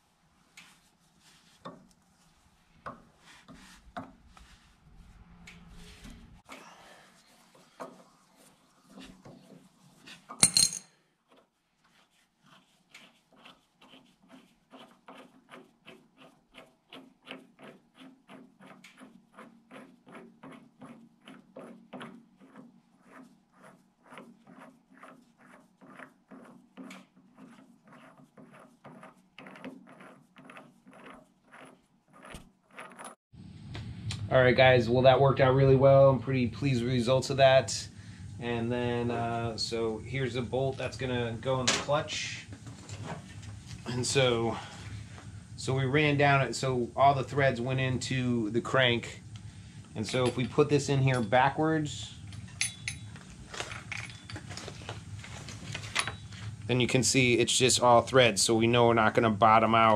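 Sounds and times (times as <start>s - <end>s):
bolt threads scraping: 52.2s - 56.6s.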